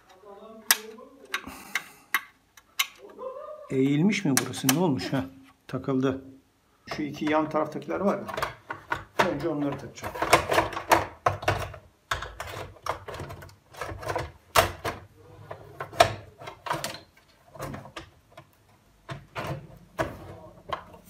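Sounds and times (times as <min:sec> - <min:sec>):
plastic clicks and rattles: 0:07.2 - 0:15.1.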